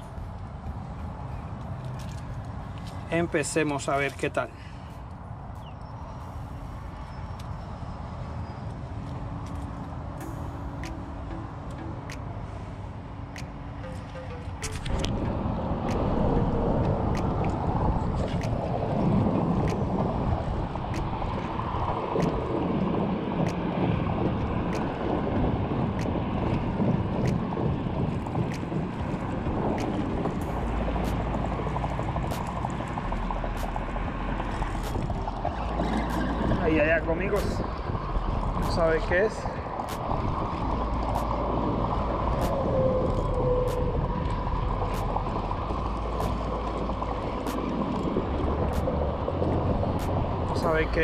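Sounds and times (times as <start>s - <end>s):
low rumbling wash of noise: 0.0s - 51.0s
wind buffeting microphone: 0.0s - 51.0s.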